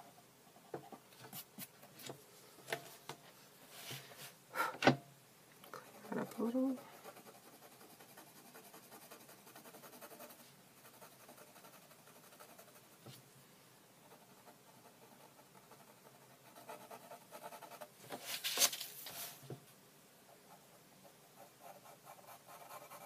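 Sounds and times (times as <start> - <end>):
pencil scratching on paper: 5.8 - 13.1, 14.0 - 17.9, 20.3 - 23.0
paper sliding across table: 18.1 - 19.5.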